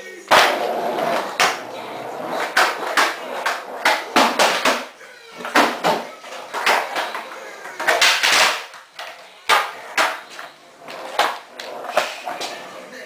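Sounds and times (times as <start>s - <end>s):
skateboard knocks on concrete: 2.6s - 4.8s.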